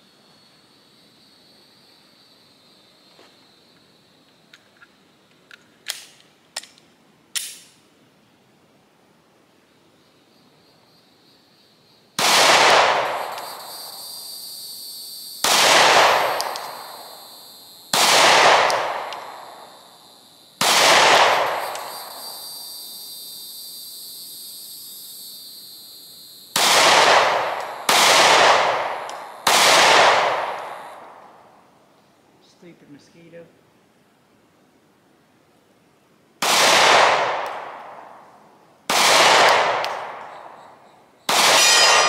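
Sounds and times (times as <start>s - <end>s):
pistol shots echoing: 12.2s - 13.6s, 15.4s - 17.2s, 17.9s - 19.7s, 20.6s - 22.2s, 26.6s - 31.2s, 36.4s - 38.1s, 38.9s - 40.6s, 41.3s - 42.0s.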